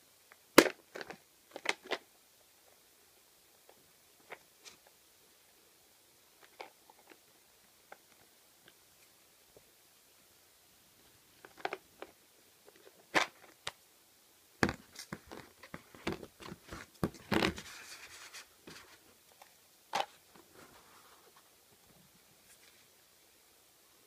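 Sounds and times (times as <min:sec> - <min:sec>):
plastic scraping: 0:14.6 - 0:19.0.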